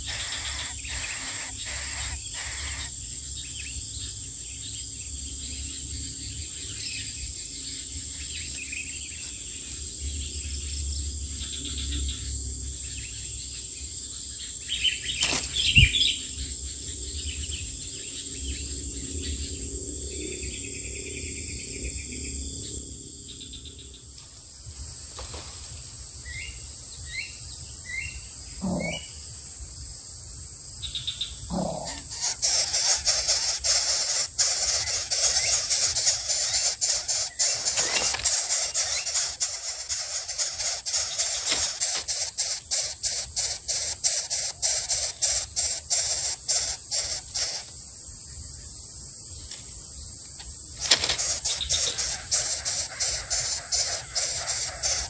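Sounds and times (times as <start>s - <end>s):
faint bird chirps: 0.0s - 4.2s, 26.2s - 29.2s, 30.8s - 47.7s, 50.8s - 55.0s
high-pitched insect drone: 0.0s - 8.5s, 17.6s - 49.2s, 50.0s - 55.0s
bird wings rustle and flutter: 15.2s - 15.6s, 24.9s - 25.9s, 32.5s - 42.4s, 50.8s - 55.0s.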